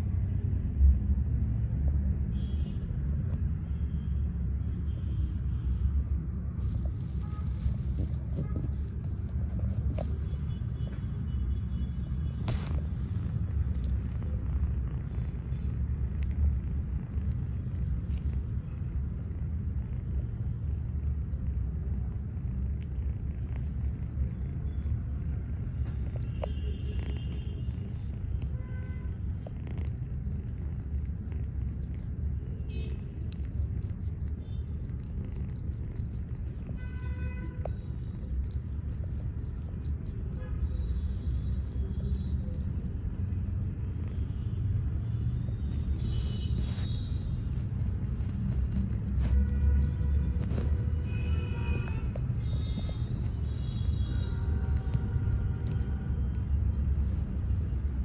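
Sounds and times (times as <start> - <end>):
kitten purring: 6.6 - 11.0, 11.9 - 40.4, 44.9 - 58.0.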